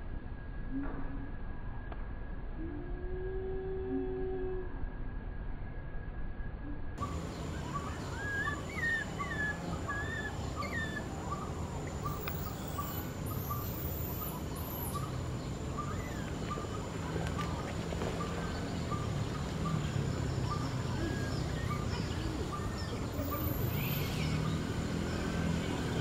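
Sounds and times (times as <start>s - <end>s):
baby monkey squealing: 7.6s - 11.5s.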